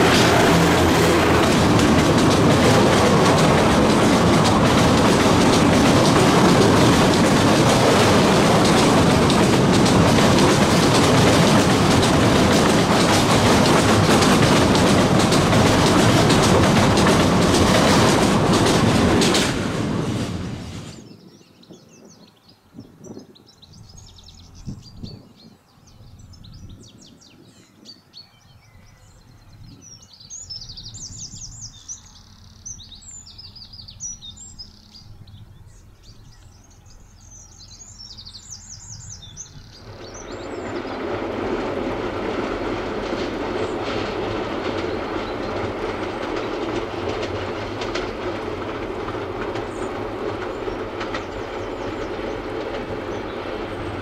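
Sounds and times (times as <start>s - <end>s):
train wheels clattering over rails: 0.0s - 21.1s, 37.3s - 54.0s
faint birds chirping: 20.9s - 54.0s.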